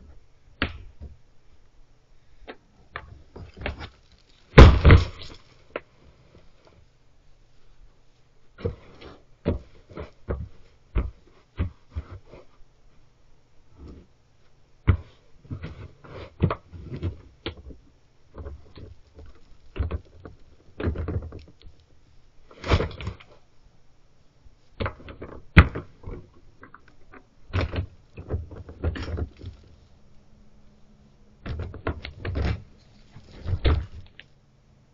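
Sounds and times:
wooden box knocks and thuds: 4.6 - 5.2, 9.4 - 11.9, 33.4 - 34.0
scraping: 31.4 - 34.3.

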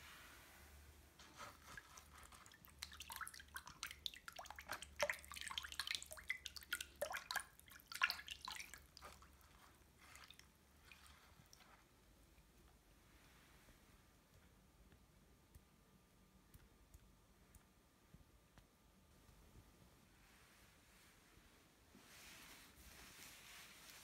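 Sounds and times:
hand swishing water in basin: 1.2 - 12.0, 22.0 - 24.0.

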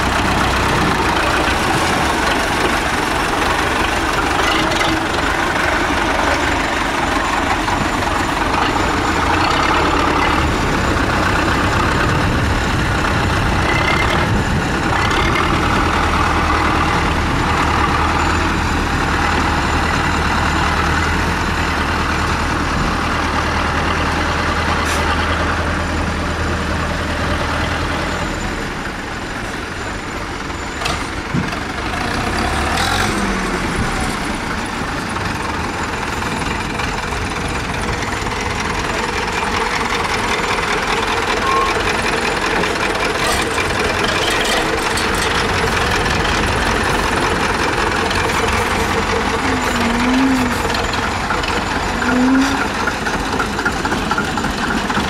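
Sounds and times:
tractor engines running: 0.0 - 55.0
engine revving: 31.8 - 34.4.

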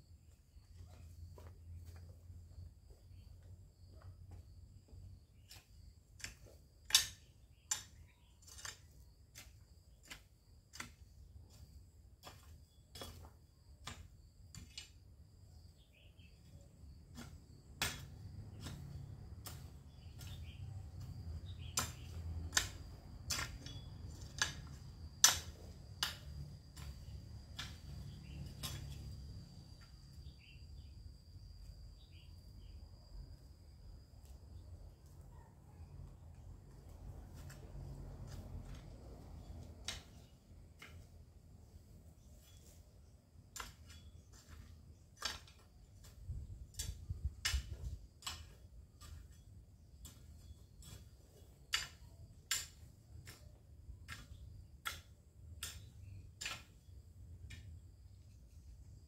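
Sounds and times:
metal tool chopping hard ground: 5.2 - 15.0, 17.0 - 29.4.

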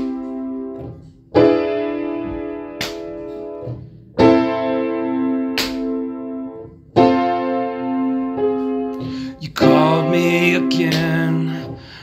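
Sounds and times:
piano chords ringing: 0.0 - 12.0
person singing: 9.2 - 12.0.

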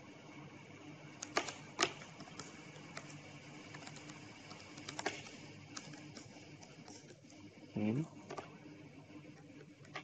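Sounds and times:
typing on computer keyboard: 1.2 - 7.2.

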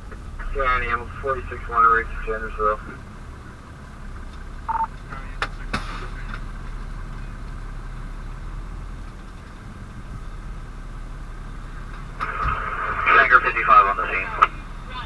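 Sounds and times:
diesel engine idling: 0.0 - 15.0
short beep: 4.7 - 4.9.

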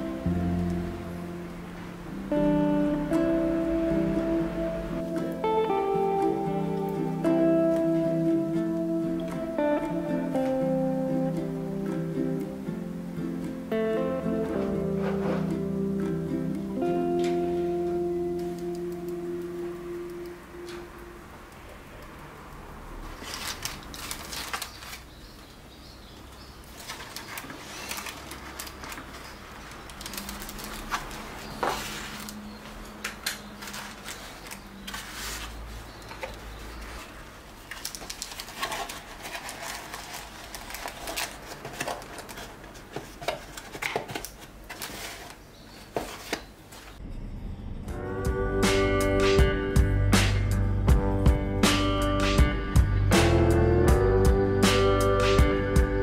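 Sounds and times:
rustling: 13.7 - 21.0, 22.9 - 25.6, 26.3 - 47.0.

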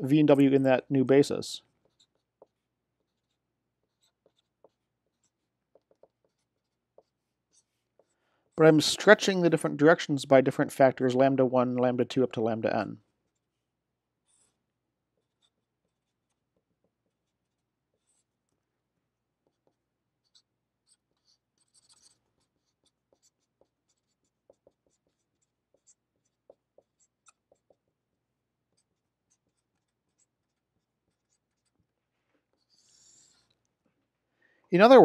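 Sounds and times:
marker writing on paper: 1.8 - 8.2, 13.2 - 18.6, 19.4 - 33.6.

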